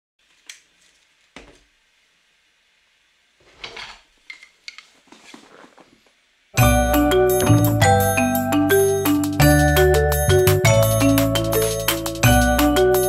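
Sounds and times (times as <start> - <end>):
music: 6.6 - 13.0.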